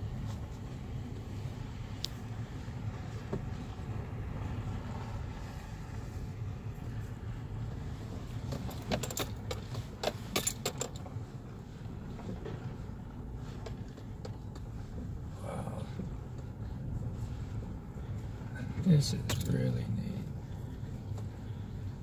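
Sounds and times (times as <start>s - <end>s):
vehicle rumbling on dirt road: 0.0s - 22.0s
rattling clicks in cab: 8.4s - 11.2s, 13.5s - 15.1s, 19.2s - 19.6s.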